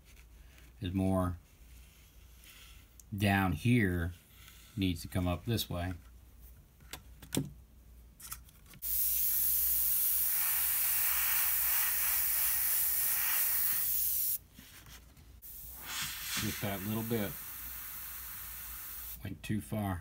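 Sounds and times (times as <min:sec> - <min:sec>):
airbrush air hiss: 0:08.8 - 0:14.4, 0:15.4 - 0:19.2.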